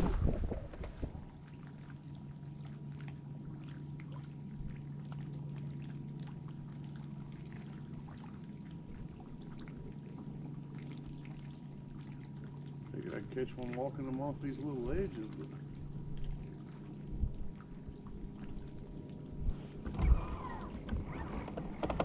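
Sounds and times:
steady low hum: 0.0 - 22.0
water lapping against boat hull: 0.0 - 22.0.

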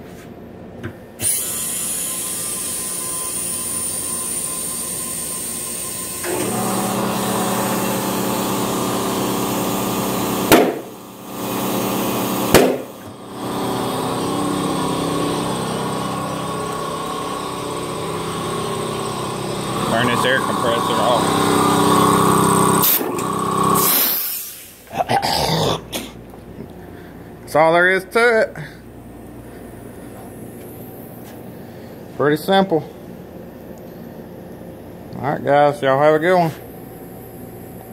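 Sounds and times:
air compressor running: 1.0 - 24.9
sharp knocks: 10.5 - 10.9, 12.5 - 12.9.

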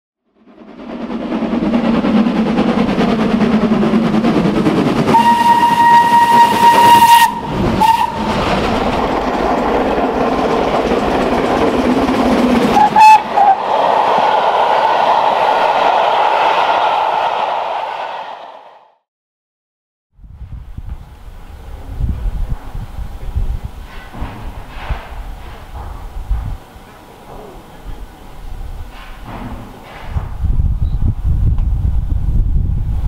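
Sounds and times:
steam locomotive running: 0.3 - 18.7, 20.4 - 33.0
steam whistle blasts: 5.1 - 8.4, 12.8 - 13.7.

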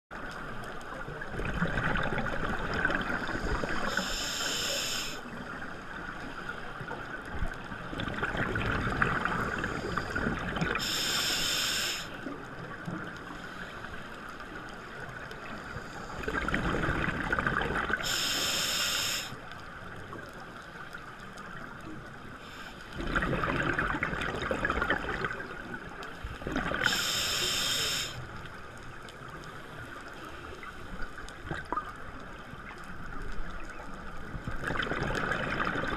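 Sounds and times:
regulator inhalation hiss: 3.2 - 5.3, 10.8 - 12.2, 18.0 - 19.4, 26.8 - 28.4
bubbling exhalation underwater: 23.0 - 25.5, 34.6 - 35.9.

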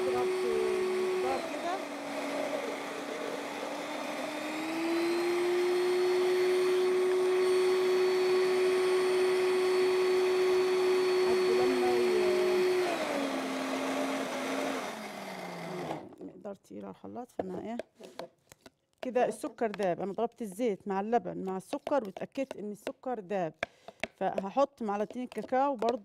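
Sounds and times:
electric blender running: 0.0 - 16.2.

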